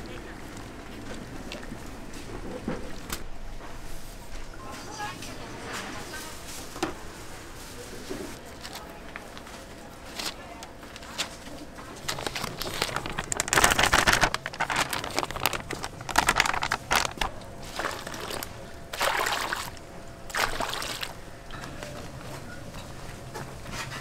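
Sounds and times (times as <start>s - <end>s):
liquid sloshing and trickling: 12.0s - 21.2s.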